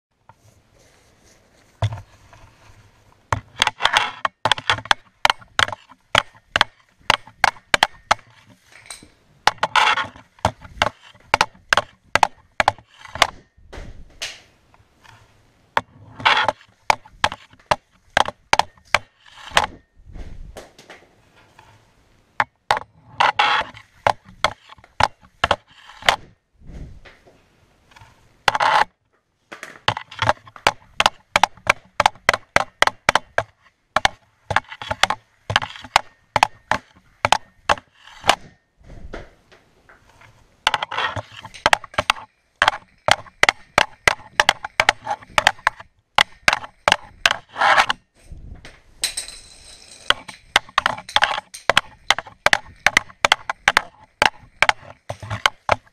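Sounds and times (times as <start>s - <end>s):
hockey stick tapping ball: 3.4s - 8.5s, 9.4s - 13.4s, 16.2s - 19.8s, 22.4s - 26.3s, 29.5s - 38.5s, 40.7s - 48.0s, 50.1s - 55.9s.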